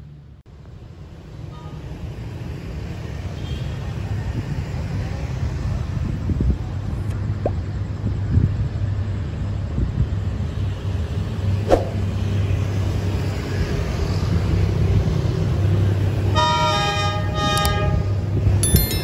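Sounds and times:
diesel locomotive horn: 16.3s - 18.4s.

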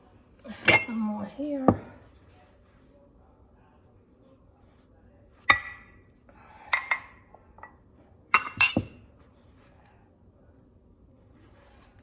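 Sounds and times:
ceramic ramekins clinking: 0.5s - 1.2s, 5.5s - 6.0s, 6.7s - 9.1s.

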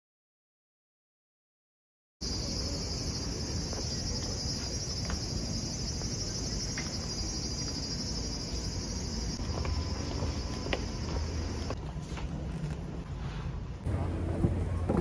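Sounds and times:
insects chirring: 2.2s - 11.8s
faint footsteps: 3.6s - 12.9s.

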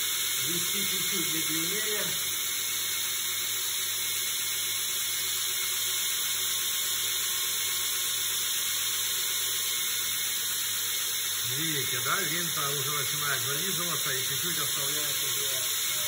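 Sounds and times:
belt grinder grinding blade: 9.4s - 16.0s.

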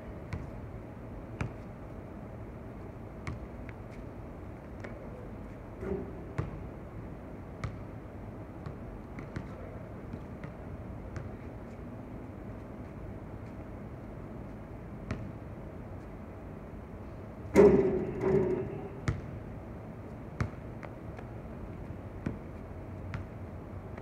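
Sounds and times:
low background hum: 0.0s - 24.0s
basketball bouncing on hard court: 3.2s - 3.5s, 6.3s - 6.7s, 7.6s - 7.9s, 8.6s - 11.3s, 15.1s - 15.4s, 17.6s - 19.4s, 20.4s - 21.0s, 23.1s - 23.4s.

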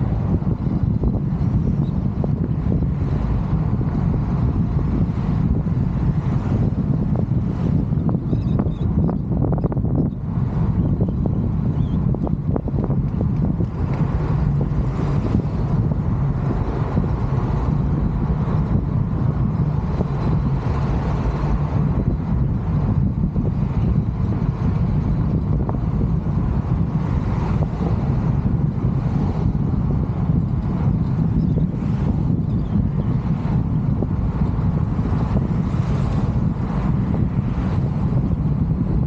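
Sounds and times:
car road and wind noise: 0.0s - 39.0s.

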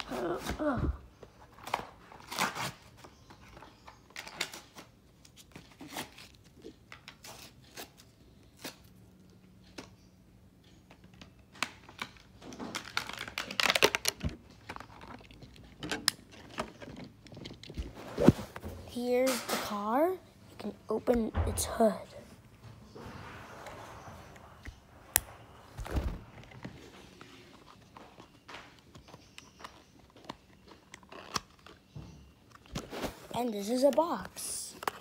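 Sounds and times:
packaging tearing: 1.6s - 2.9s, 12.7s - 14.2s
packaging crinkling: 11.9s - 17.8s.

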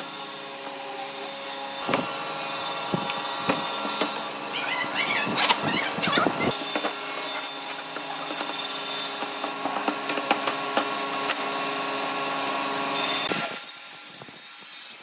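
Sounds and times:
pipe clamps clicking and knocking: 9.2s - 11.4s.

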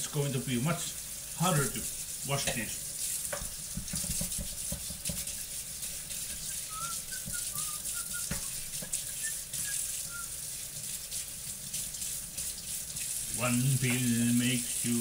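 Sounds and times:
high whistle-like notes: 6.4s - 8.5s.

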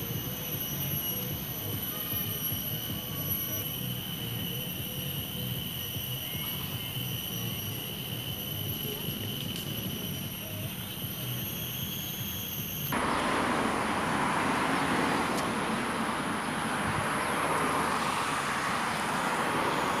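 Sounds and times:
outdoor background noise: 0.0s - 20.0s.

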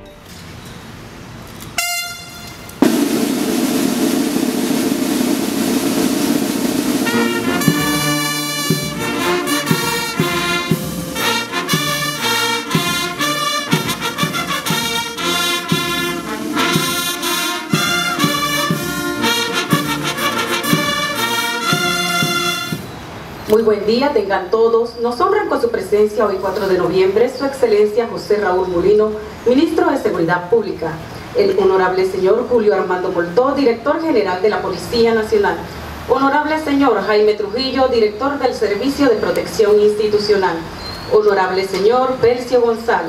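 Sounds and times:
brass band playing: 1.8s - 23.0s.

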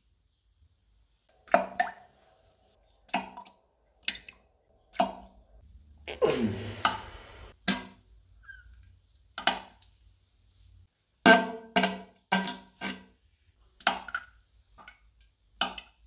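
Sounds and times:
wet plops into toilet water: 2.8s - 5.4s, 9.2s - 10.1s, 13.7s - 16.0s.

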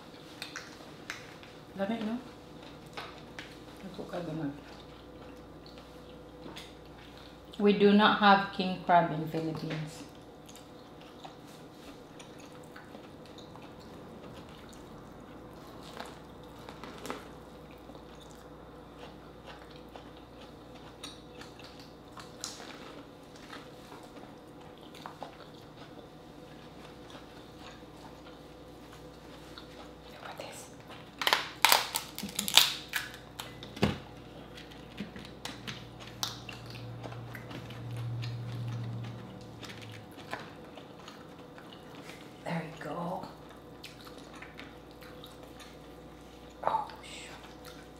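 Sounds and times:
person chewing food: 0.0s - 1.7s, 4.6s - 7.6s, 10.1s - 42.4s, 43.3s - 47.9s
crab shell cracking: 31.2s - 33.7s.

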